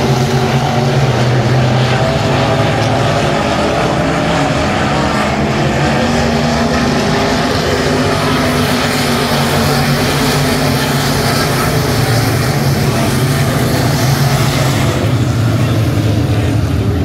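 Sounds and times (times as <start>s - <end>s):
race car engines droning: 0.0s - 17.0s.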